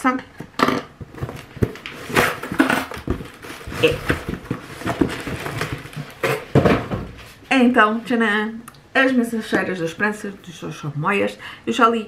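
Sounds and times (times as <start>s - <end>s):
cardboard packaging crinkling: 1.2s - 6.6s.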